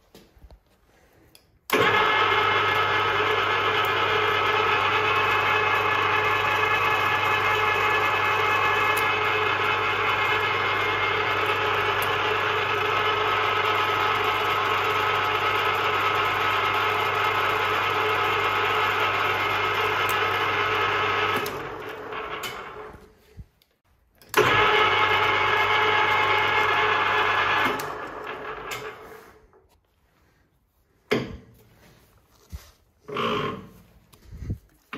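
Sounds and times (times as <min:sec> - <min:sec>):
metal lathe motor hum: 0:01.7 - 0:22.9, 0:24.3 - 0:29.3
lathe starting clunk: 0:01.7 - 0:23.0, 0:24.2 - 0:29.4, 0:33.1 - 0:33.7.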